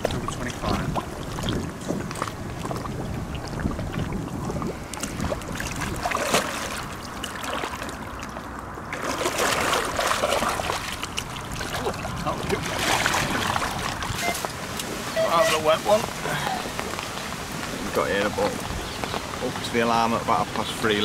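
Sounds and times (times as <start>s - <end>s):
wind rumble on microphone: 0.0s - 7.2s, 7.9s - 21.0s
fish splashing away: 0.0s - 15.0s
water sloshing and splashing: 0.0s - 21.0s.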